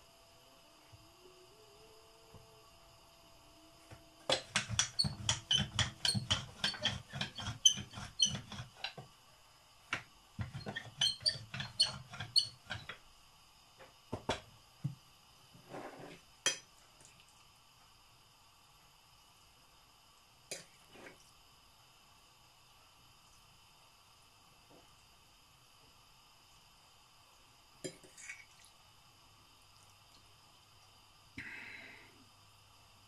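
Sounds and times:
rolling pin knocking on worktop: 4.3 - 8.6.

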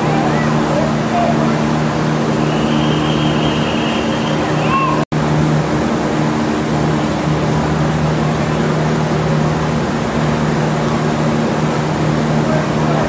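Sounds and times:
rushing noise: 0.0 - 13.0
steady machine hum: 0.0 - 13.0.

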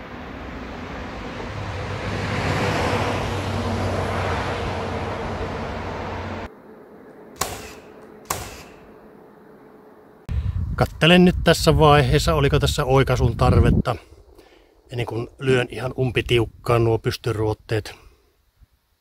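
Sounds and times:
motor vehicle passing: 0.0 - 10.2
low engine hum: 0.0 - 10.4
hammer blows on wood: 7.4 - 8.8.

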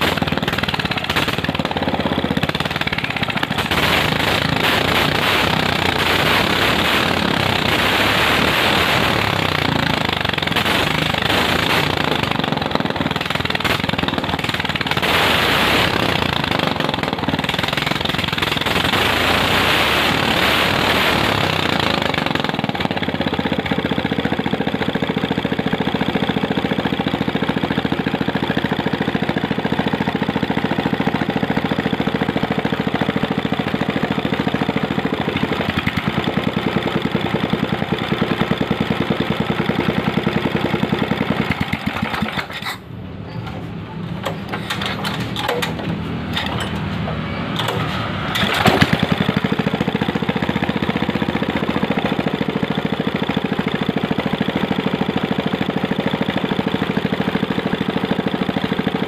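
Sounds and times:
petrol engine revving: 0.0 - 59.0.

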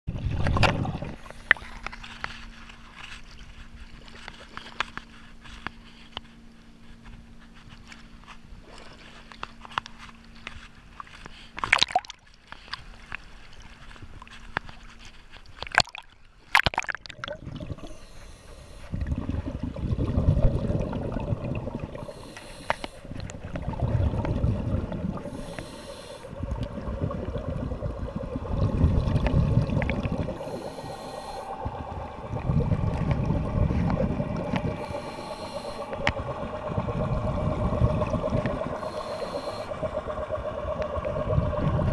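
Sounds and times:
exhaled bubbles rumbling: 0.1 - 2.2, 15.7 - 18.1, 18.8 - 41.9
water sloshing and splashing: 0.1 - 41.9
regulator inhale hiss: 1.2 - 2.4, 17.8 - 19.0, 21.9 - 23.2, 25.2 - 26.4, 30.1 - 32.2, 33.7 - 36.8, 38.5 - 40.5.

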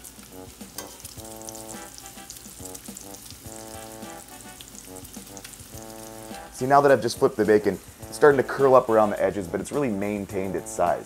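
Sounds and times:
background music: 0.0 - 11.0
bacon sizzling: 0.0 - 11.0
metal tongs clicking on pan: 0.8 - 1.2.

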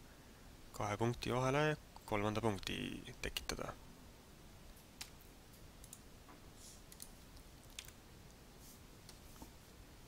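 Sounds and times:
computer mouse clicks: 5.8 - 6.0, 6.9 - 8.0.

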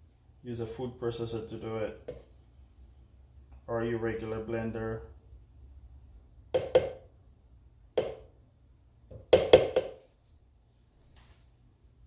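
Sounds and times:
spatula knocking on blender jar: 6.6 - 7.0, 8.0 - 8.2, 9.1 - 10.0.

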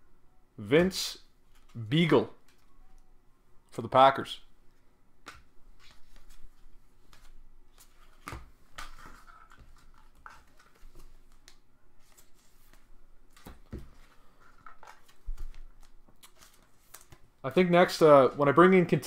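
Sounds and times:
cards rustling and clicking: 1.5 - 1.8, 5.2 - 17.3.

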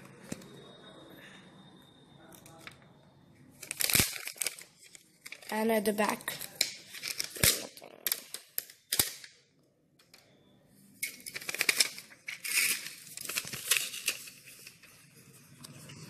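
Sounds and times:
crackling and crinkling: 3.6 - 9.4, 11.0 - 16.0
plastic snaps and clicks: 6.5 - 9.4.

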